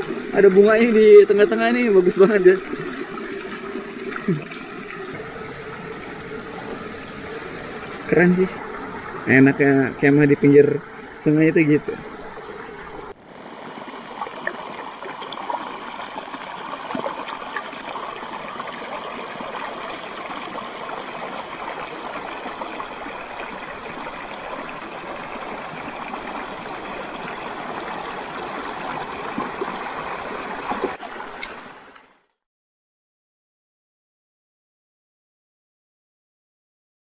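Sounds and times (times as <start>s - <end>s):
stream running over rocks: 0.0s - 32.2s.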